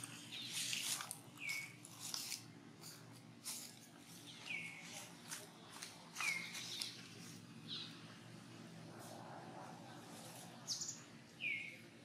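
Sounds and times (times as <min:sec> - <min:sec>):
sharp clicks and rustles: 0:00.0 - 0:07.4.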